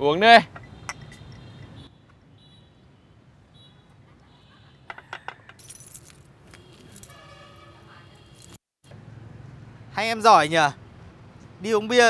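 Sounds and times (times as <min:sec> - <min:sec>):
keys jangling: 0:05.5 - 0:07.2.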